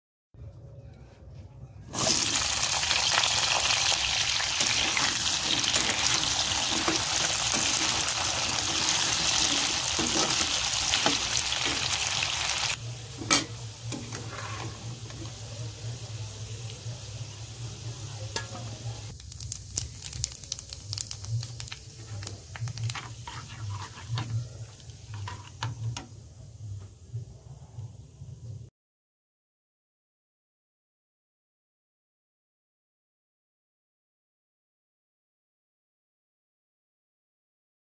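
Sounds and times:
vegetables sizzling in hot oil: 1.9 - 26.3
metal spatula scraping a pan: 4.6 - 15.3, 22.2 - 26.1.

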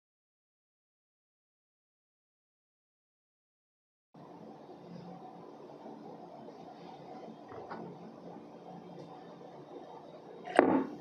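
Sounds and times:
room hum: 4.2 - 11.0.

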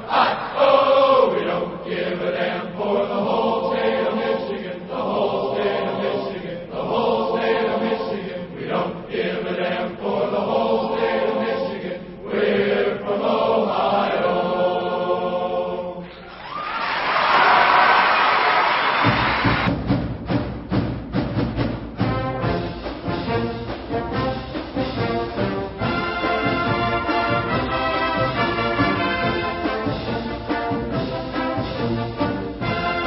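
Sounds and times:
crowd chanting in unison: 0.0 - 16.1.

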